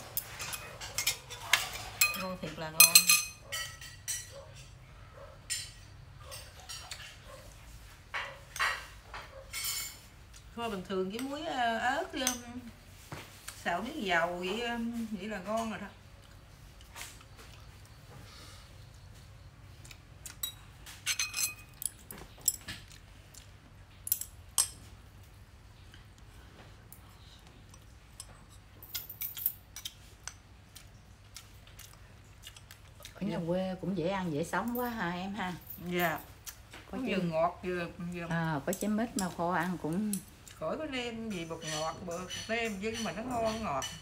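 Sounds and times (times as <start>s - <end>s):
metal spoon clinking on pot: 0.2s - 4.3s, 20.3s - 22.6s.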